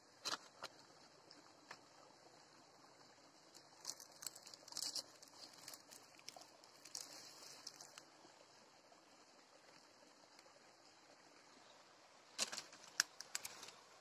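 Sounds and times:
dried leaf crackling: 3.6s - 8.0s, 12.4s - 13.8s.

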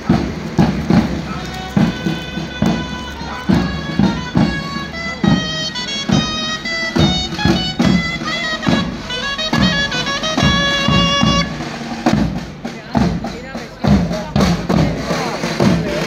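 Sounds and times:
drum beats: 0.0s - 16.0s
shrill wind instrument melody: 1.2s - 12.5s.

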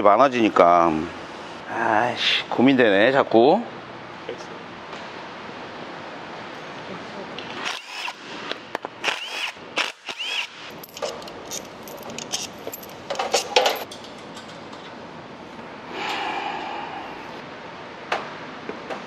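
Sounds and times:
metal parts clicking and clattering: 10.7s - 15.0s.

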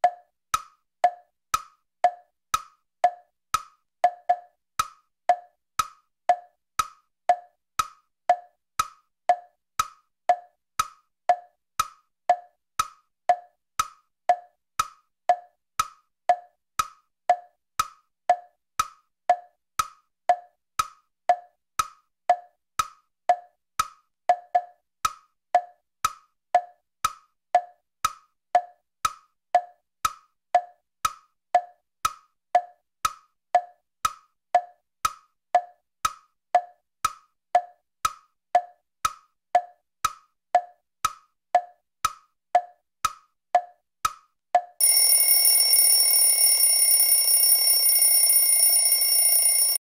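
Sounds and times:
clock ticking: 0.0s - 43.7s, 44.6s - 49.8s
alarm clock bell ringing: 44.8s - 49.8s.

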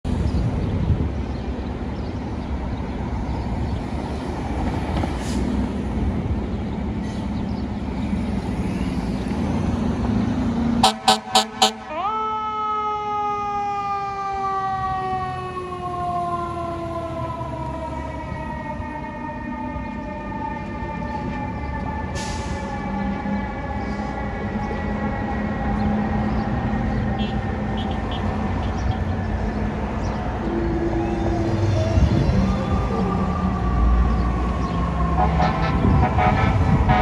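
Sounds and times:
fire engine siren: 10.5s - 37.0s
fire engine horn blasts: 10.8s - 12.2s, 35.1s - 37.0s
diesel engine rumbling: 21.0s - 37.0s.

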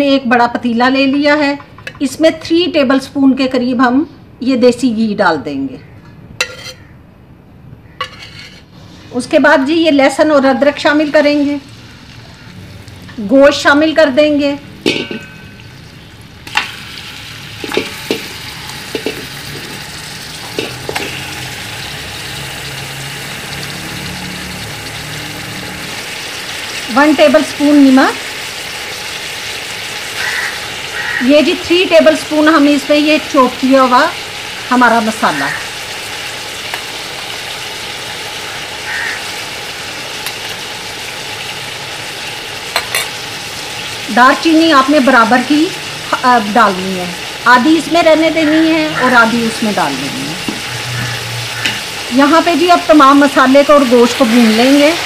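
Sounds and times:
meat sizzling in hot fat: 10.5s - 55.0s
meat pieces knocking in pot: 14.8s - 15.8s, 17.5s - 21.5s.

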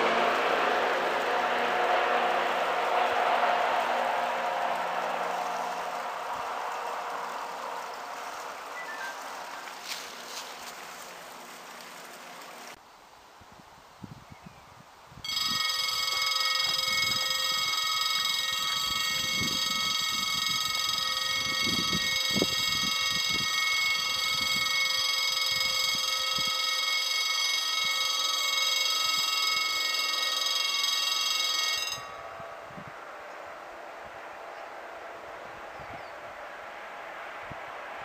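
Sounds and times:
level crossing warning bell: 15.2s - 33.9s.

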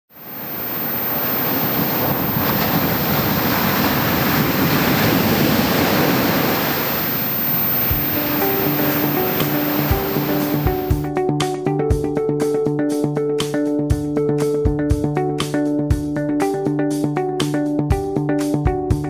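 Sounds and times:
ocean surf breaking: 0.1s - 11.0s
background music with low beat: 7.9s - 19.0s.

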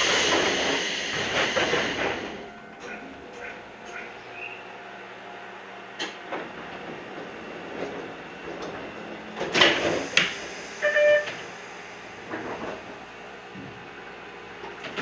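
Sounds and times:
train door air hiss: 0.0s - 2.4s, 9.5s - 12.9s
short electronic tone: 10.8s - 11.3s.

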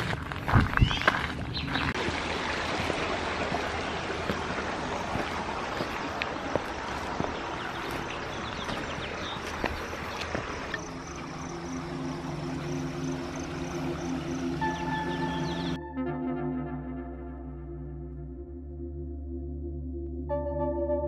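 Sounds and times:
footsteps on dirt trail: 0.0s - 10.9s
creek rushing: 0.0s - 15.8s.

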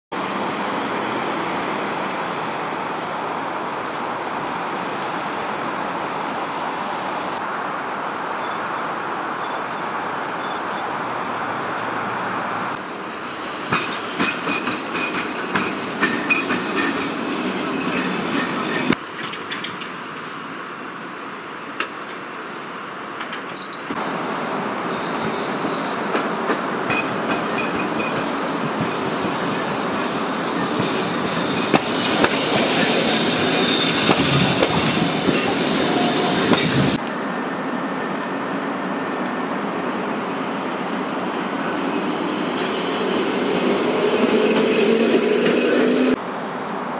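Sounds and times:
tram wheels squealing: 12.7s - 19.8s, 23.3s - 24.0s, 24.7s - 46.2s
wheels clattering over rail joints: 13.6s - 20.2s.

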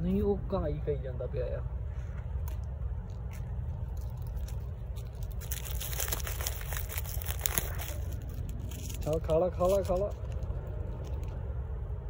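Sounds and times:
steady low rumble: 0.0s - 12.0s
crinkling and crunching handling: 2.1s - 11.5s.

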